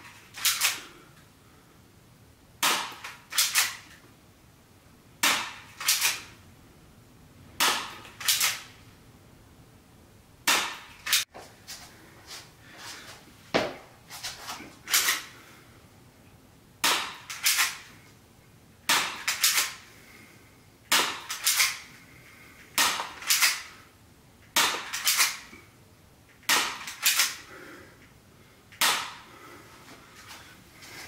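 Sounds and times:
airsoft pistol firing: 2.6s - 3.8s, 5.2s - 6.3s, 7.6s - 8.7s, 10.5s - 11.2s, 16.8s - 17.8s, 18.9s - 19.8s, 20.9s - 21.8s, 22.8s - 23.7s, 24.6s - 25.4s, 28.8s - 29.2s.

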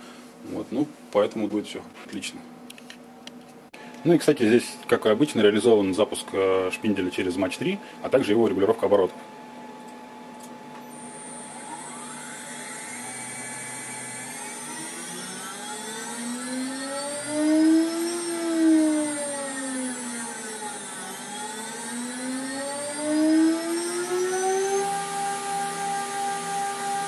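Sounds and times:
router spindle whine: 10.8s - 27.0s.

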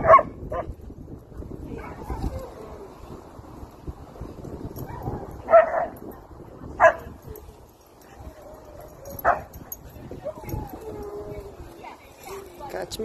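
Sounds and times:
dog barking: 0.0s - 0.7s, 4.9s - 6.0s, 6.8s - 7.1s, 9.2s - 9.6s.

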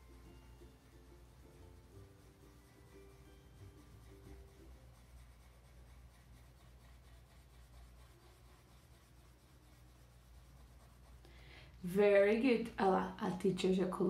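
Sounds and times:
low steady hum: 0.0s - 14.0s
pencil scratching on paper: 1.6s - 11.3s.

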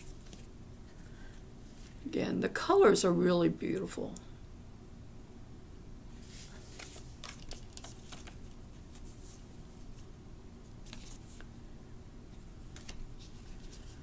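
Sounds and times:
cards rustling and clicking: 0.0s - 0.5s, 6.3s - 9.2s, 10.8s - 11.5s, 12.7s - 14.0s.

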